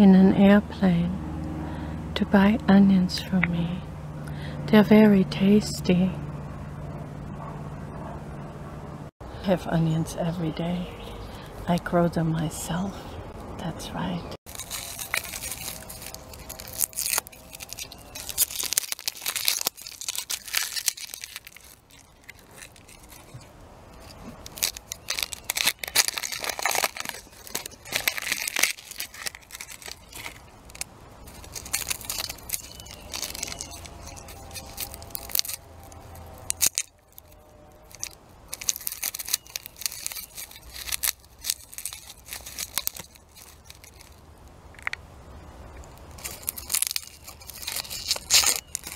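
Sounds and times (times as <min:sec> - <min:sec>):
raw onion tearing and crackling: 0:14.4 - 0:45.0, 0:45.7 - 0:48.9.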